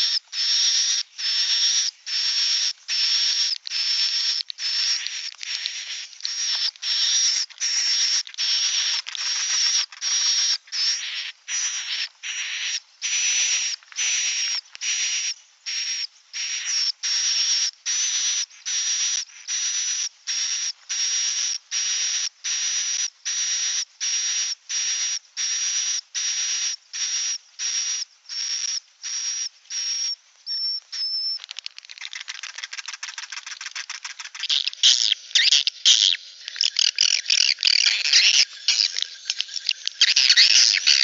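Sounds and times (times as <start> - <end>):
swiftlet buzzy chirps: 0.0 - 41.0
bird twittering bursts: 30.5 - 41.0
fast rapid clicking: 31.5 - 35.5.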